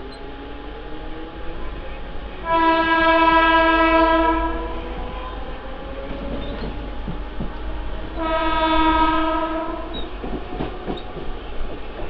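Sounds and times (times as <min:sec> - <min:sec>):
train rumbling along track: 0:00.0 - 0:12.0
train horn blast: 0:02.3 - 0:05.6, 0:07.7 - 0:11.0.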